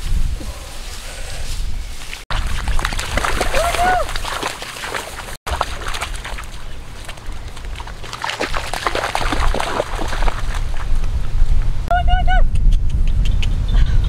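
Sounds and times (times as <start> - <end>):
dogs splashing through water: 2.0 - 11.3
steady low rumble: 5.5 - 14.0.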